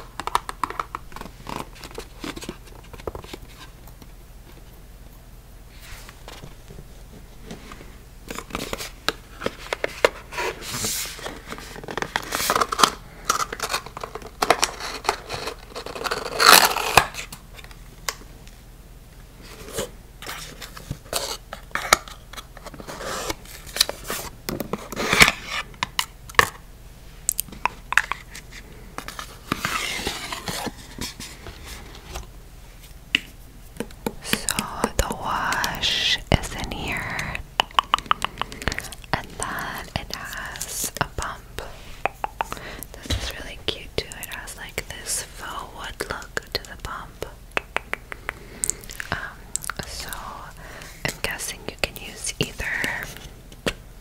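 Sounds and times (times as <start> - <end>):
box flap scraping and rustling: 29.1 - 32.3.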